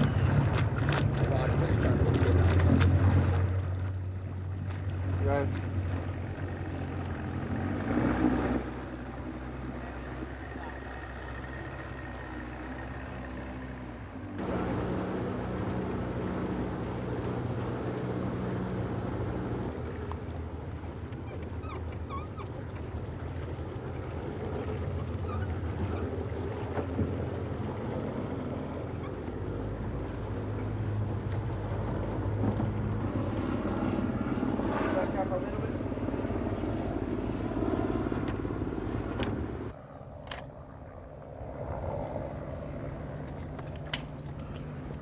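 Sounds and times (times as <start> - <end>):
outboard motor running: 0.0 - 39.7
short high squeaks: 21.2 - 22.5.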